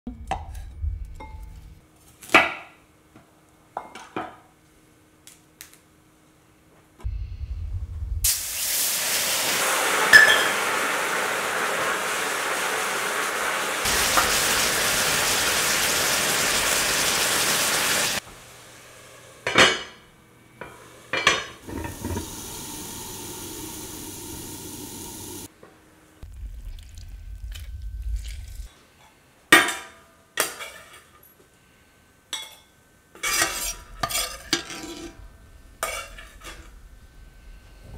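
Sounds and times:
steam hissing: 8.2s - 19.4s, 21.6s - 25.5s
food sizzling in skillet: 8.3s - 19.5s, 20.8s - 25.5s
iron lid clanking: 21.1s - 22.6s
metal spoon scraping and clinking: 32.5s - 35.2s.

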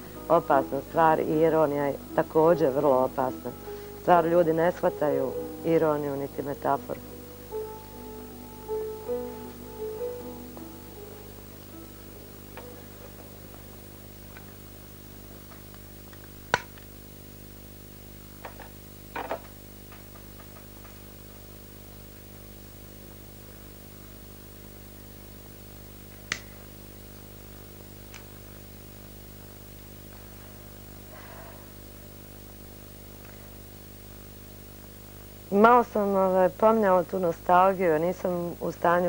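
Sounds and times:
steady electrical hum: 0.0s - 39.0s.

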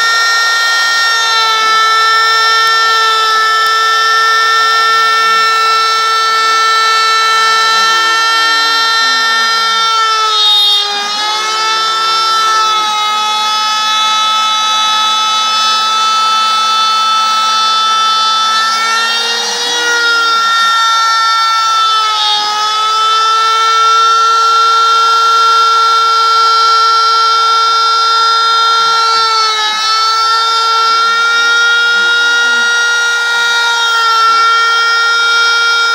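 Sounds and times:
axis motors gliding in pitch: 0.0s - 35.9s
end mill cutting plywood: 0.0s - 35.9s
spindle motor high whine: 0.0s - 35.9s.

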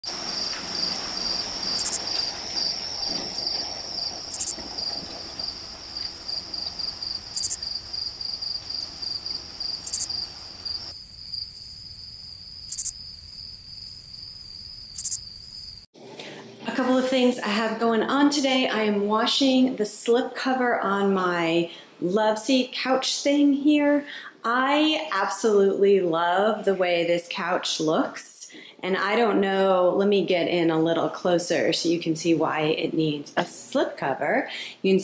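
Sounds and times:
crickets chirping: 0.0s - 15.9s.

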